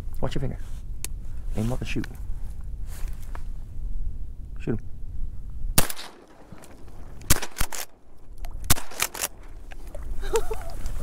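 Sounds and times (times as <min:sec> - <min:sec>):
shotgun shots: 0:05.8 - 0:09.6
sharp light clicks: 0:05.8 - 0:10.0.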